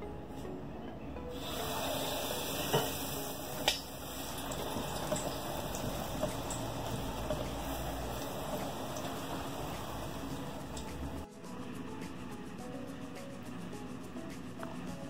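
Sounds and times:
dough sizzling in hot oil: 1.3 - 11.3.

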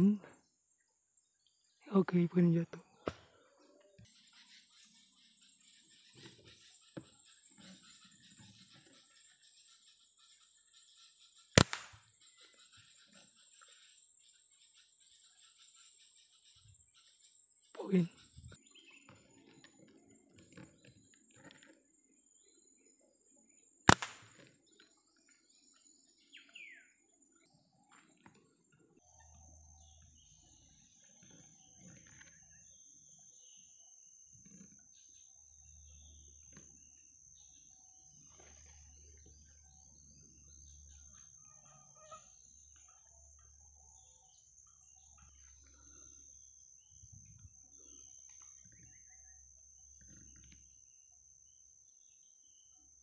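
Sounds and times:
bird chirps: 0.0 - 53.0
high-pitched insect drone: 12.2 - 19.0, 29.0 - 53.0.

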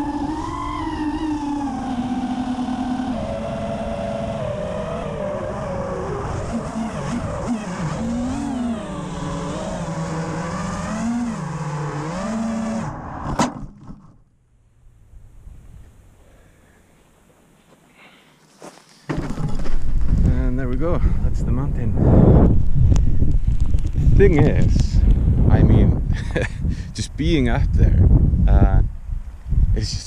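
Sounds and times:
drone motors and props whining: 0.0 - 14.2.

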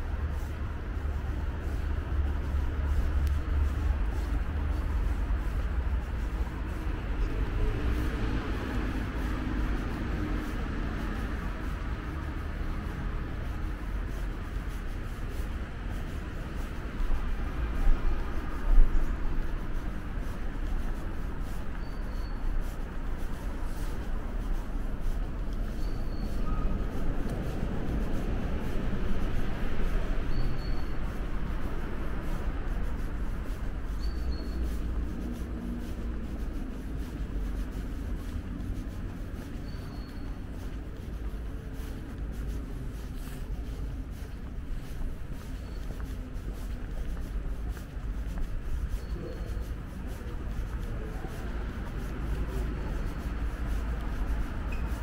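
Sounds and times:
low rumble of city traffic: 0.0 - 55.0
faint high chirp: 30.3 - 31.0.

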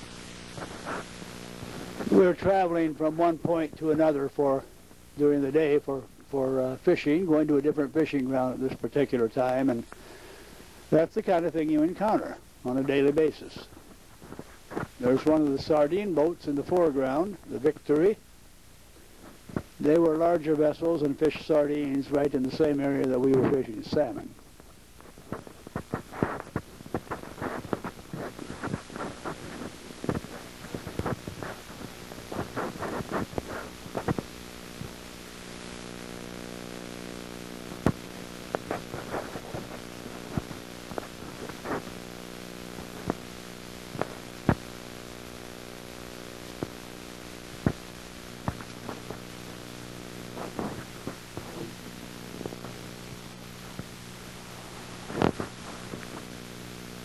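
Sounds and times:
steady low hum: 0.0 - 57.0
clicks and crackles: 0.1 - 2.3, 20.8 - 57.0.

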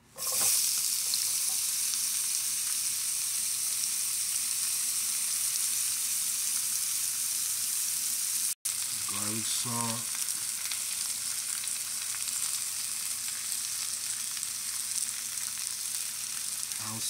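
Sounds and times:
vegetables sizzling in a frying pan: 0.0 - 17.0.

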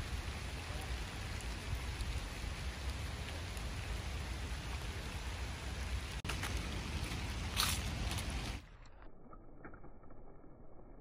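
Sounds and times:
rain on paving and leaves: 0.0 - 8.9.

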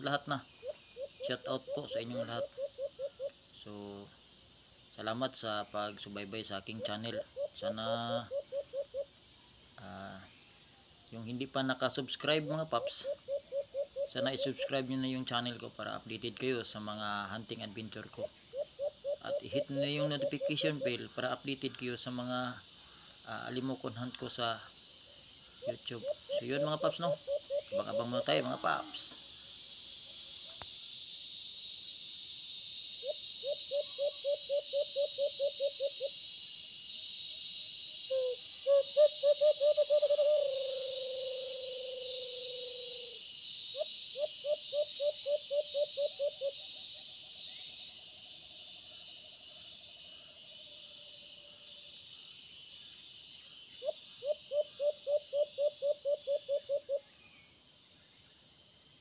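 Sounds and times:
dove cooing in pulsed notes: 0.0 - 3.4, 6.7 - 9.1, 12.2 - 14.9, 18.5 - 21.2, 25.5 - 28.9, 33.0 - 36.2, 38.1 - 46.7, 53.8 - 57.1
high insect buzz: 0.0 - 59.0.

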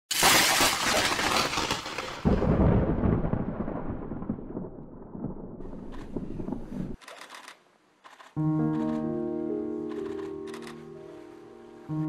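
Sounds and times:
thunder-like crash and rumble: 2.2 - 7.0.

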